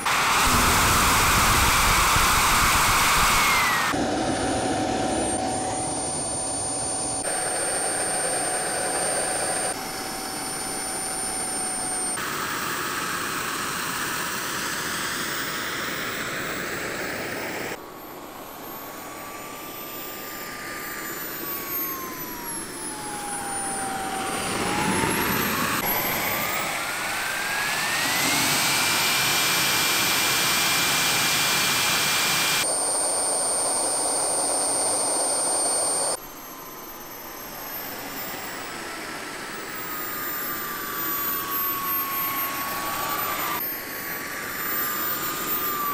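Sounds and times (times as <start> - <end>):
jet turbine whining: 0.0 - 45.9
exhaust rushing: 20.5 - 32.6.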